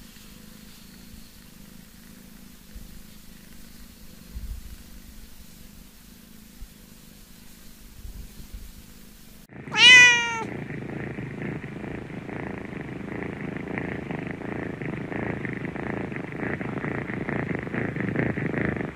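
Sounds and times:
cat purring: 0.0s - 18.9s
cat meowing: 9.7s - 10.5s.

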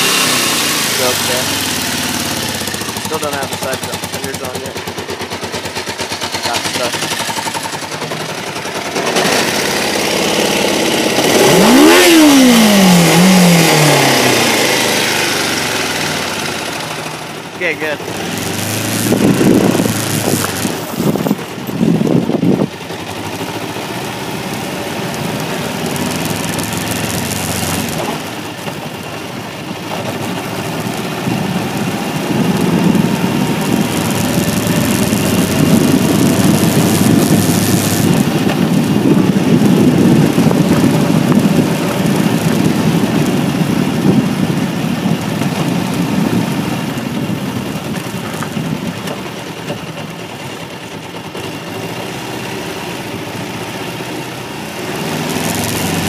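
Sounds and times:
motorcycle engine revving: 0.0s - 56.0s
wind on microphone: 18.3s - 22.8s, 31.3s - 49.0s.

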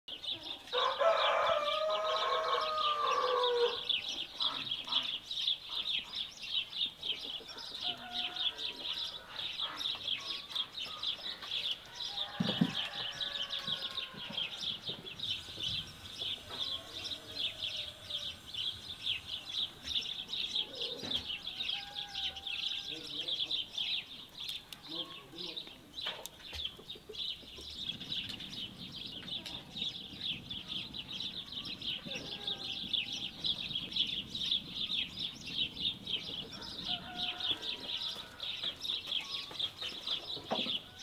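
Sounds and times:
small birds chirping: 0.1s - 41.0s
rooster crowing: 0.7s - 4.0s, 7.6s - 9.3s, 11.9s - 23.4s, 31.6s - 33.6s, 36.5s - 38.6s, 40.8s - 41.0s.

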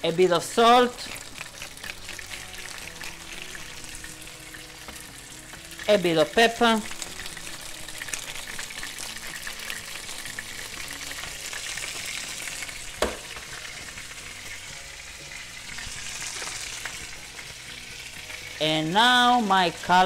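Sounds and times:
fish sizzling in a pan: 0.0s - 20.0s
sharp knock: 13.0s - 13.3s.

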